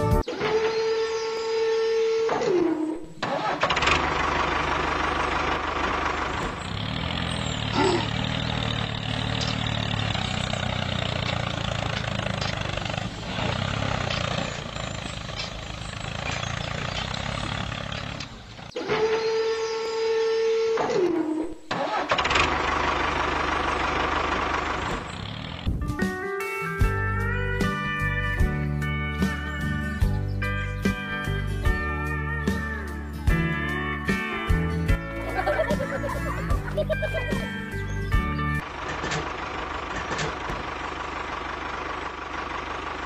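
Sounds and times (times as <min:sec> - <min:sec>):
tractor engine running: 0:03.1 - 0:20.7, 0:21.6 - 0:43.0
high tone sliding down in pitch: 0:35.2 - 0:37.5.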